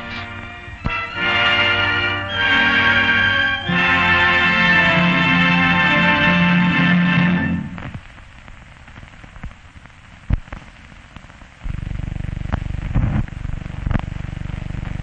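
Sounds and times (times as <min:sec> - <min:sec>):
film soundtrack hiss: 0:00.0 - 0:15.0
steady low buzz: 0:11.5 - 0:15.0.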